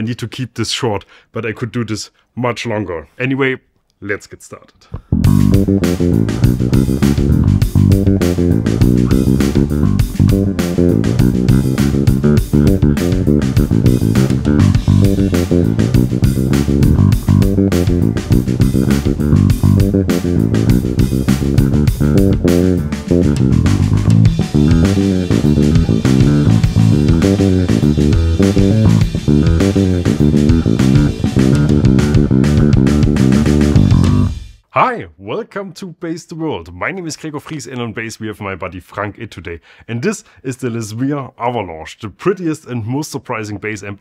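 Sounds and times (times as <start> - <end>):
electric bass plucked notes: 5.0 - 34.5.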